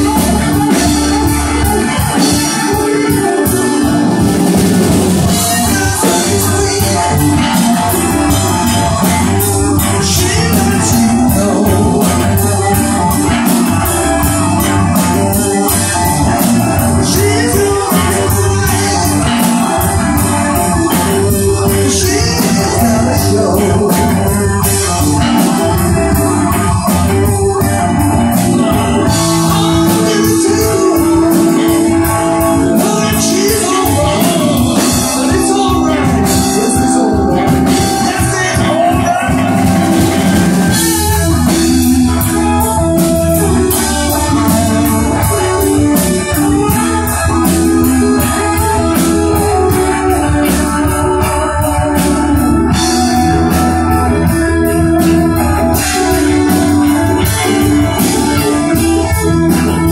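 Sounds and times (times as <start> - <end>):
live rock band: 0.0 - 59.9.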